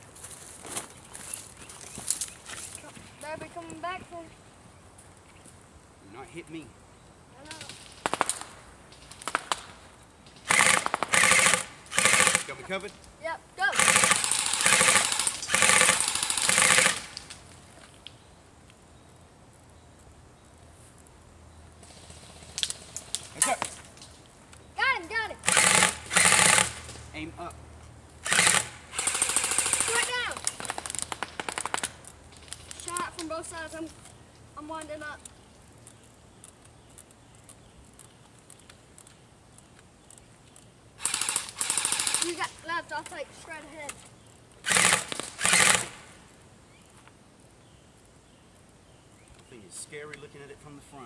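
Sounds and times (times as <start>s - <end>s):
airsoft gun firing full-auto: 10.4s - 12.6s, 13.7s - 17.2s, 25.4s - 27.0s, 28.2s - 31.9s, 41.0s - 42.4s, 44.6s - 46.0s
faint scattered ticks: 30.4s - 44.6s.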